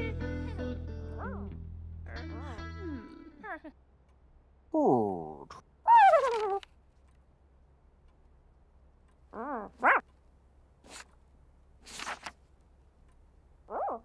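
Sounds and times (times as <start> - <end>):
cartoon puppy yips: 1.2 - 1.5, 5.8 - 6.6, 9.3 - 10.0, 13.7 - 14.0
brief rustles: 6.0 - 7.1, 10.8 - 11.2, 11.8 - 12.5.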